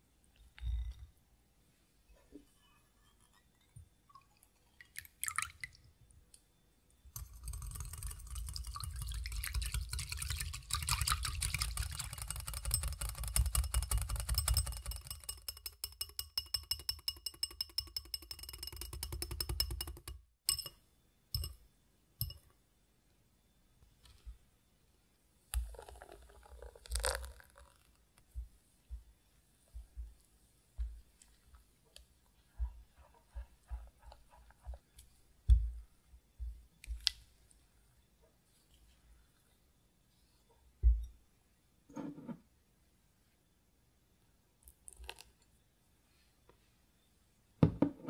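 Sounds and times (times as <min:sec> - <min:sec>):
whisk beating in glass bowl: 0:07.2 - 0:20.7, 0:32.6 - 0:35.7.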